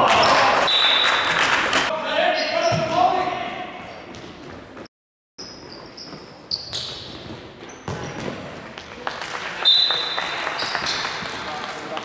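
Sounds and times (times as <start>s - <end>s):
sneakers squeaking on wooden floor: 3.8s - 8.4s
ball being kicked and bouncing: 6.7s - 8.5s.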